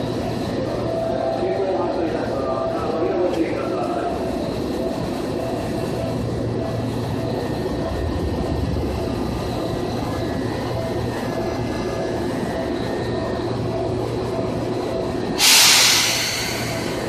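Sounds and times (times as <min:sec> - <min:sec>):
faint steady tones: 0:00.0 - 0:15.4
train wheels rumbling on rail: 0:00.0 - 0:17.0
loud air hiss: 0:15.4 - 0:17.0.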